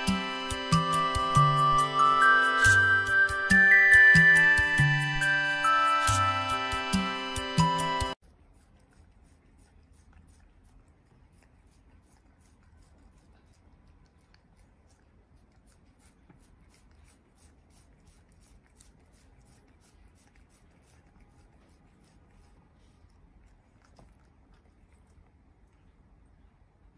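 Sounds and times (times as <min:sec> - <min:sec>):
cat licking wet clicks: 0:08.2 - 0:26.5.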